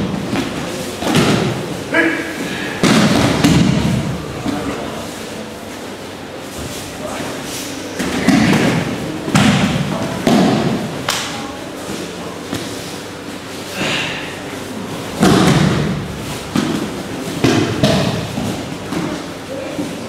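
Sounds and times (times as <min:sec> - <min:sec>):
bodies thudding on gym mats: 0:02.7 - 0:04.7, 0:15.1 - 0:19.3.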